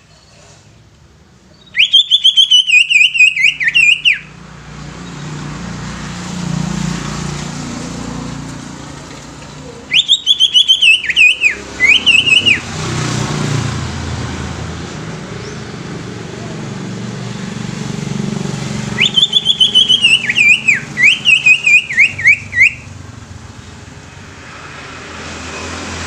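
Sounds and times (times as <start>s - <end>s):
passing motor traffic rumble: 0.0s - 26.0s
bird singing whistled notes: 1.5s - 4.3s, 9.9s - 12.7s, 19.0s - 23.0s.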